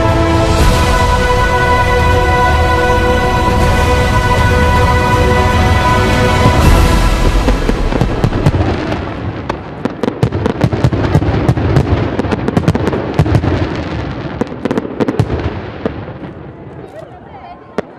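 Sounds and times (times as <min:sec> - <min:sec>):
fireworks low booms: 0:00.0 - 0:16.9
fireworks sharp crackles: 0:06.5 - 0:17.9.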